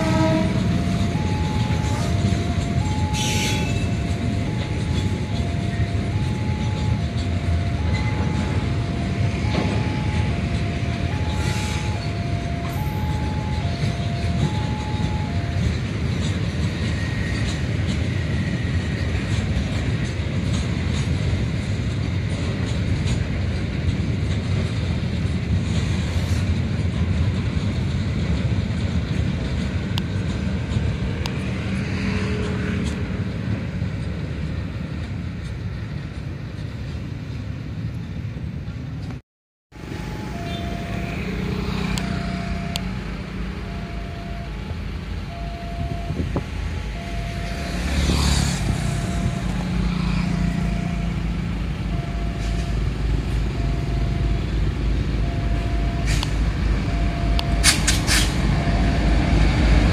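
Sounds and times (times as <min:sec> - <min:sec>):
two-tone level crossing alarm: 0:00.0 - 0:18.6, 0:39.7 - 0:59.9
train wheels rumbling on rail: 0:00.0 - 0:59.9.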